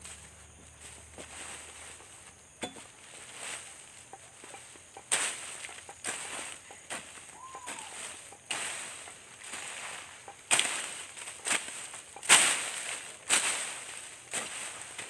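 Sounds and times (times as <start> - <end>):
garden tool striking soil: 2.6 - 3.1, 5.0 - 9.8, 10.4 - 15.0.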